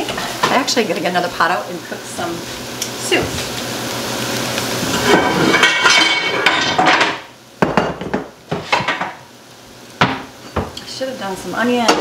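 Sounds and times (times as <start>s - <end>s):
pots and pans clattering: 4.8s - 9.3s, 10.0s - 10.8s.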